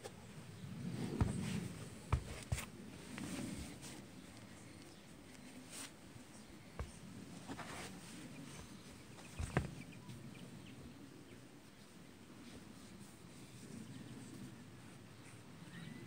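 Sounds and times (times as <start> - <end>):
faint bird chirps: 15.2 - 16.0.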